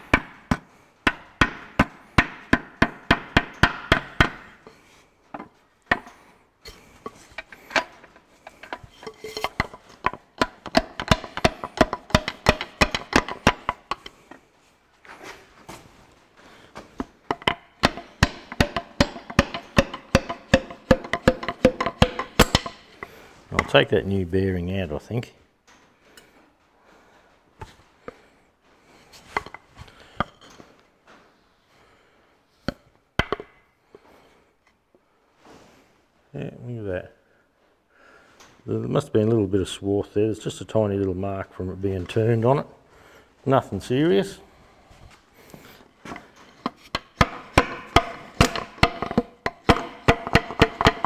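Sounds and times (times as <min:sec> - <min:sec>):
metal parts clinking and knocking: 0:05.3 - 0:14.4, 0:17.2 - 0:23.1, 0:46.1 - 0:51.0.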